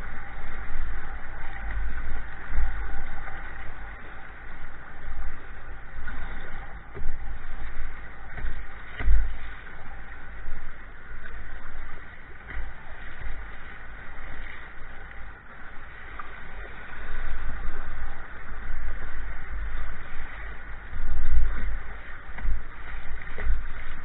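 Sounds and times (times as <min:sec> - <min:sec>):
water splashes: 0:00.0 - 0:24.0.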